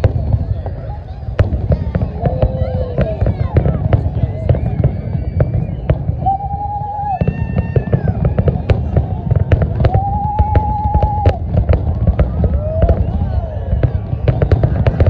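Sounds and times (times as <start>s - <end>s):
fireworks crackling bangs: 0.0s - 15.0s
fireworks whistling tone: 0.0s - 15.0s.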